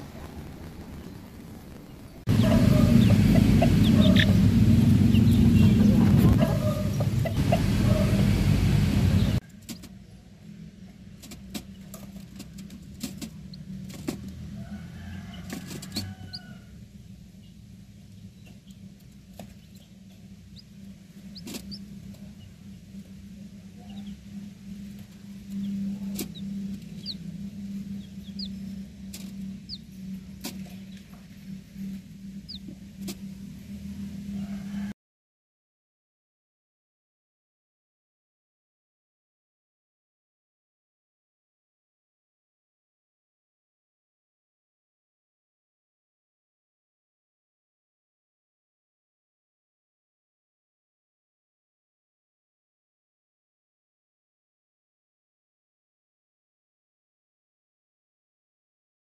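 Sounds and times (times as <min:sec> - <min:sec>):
loud rushing noise: 0:00.0 - 0:09.4
chick peeping: 0:00.0 - 0:10.2, 0:17.4 - 0:22.6, 0:23.8 - 0:31.2, 0:32.4 - 0:33.2
incubator humming: 0:00.0 - 0:34.9.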